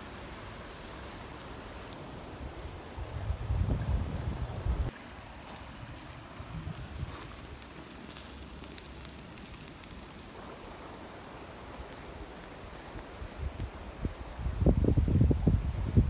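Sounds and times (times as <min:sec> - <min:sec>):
campfire crackling and popping: 0:01.8 - 0:10.4
wind gust on microphone: 0:02.5 - 0:04.9, 0:06.3 - 0:07.4, 0:13.2 - 0:16.0.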